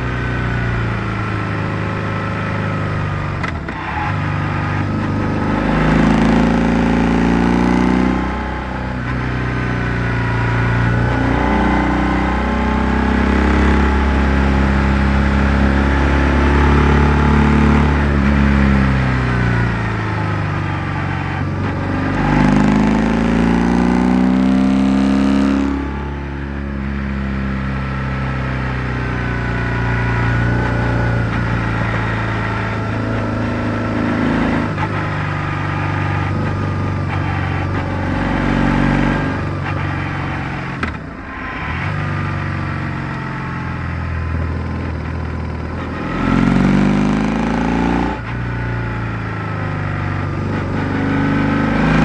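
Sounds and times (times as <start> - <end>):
motorcycle engine running: 25.6 - 52.0.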